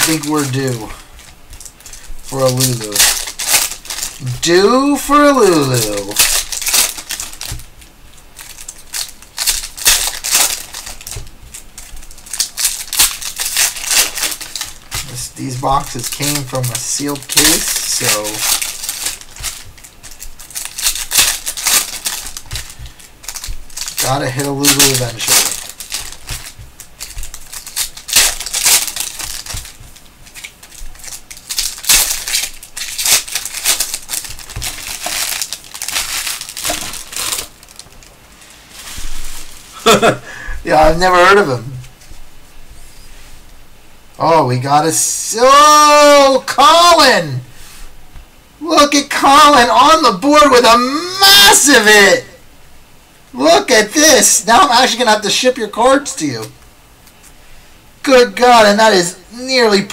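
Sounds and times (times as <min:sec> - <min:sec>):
foil wrapper crinkling: 0:00.0 - 0:42.3.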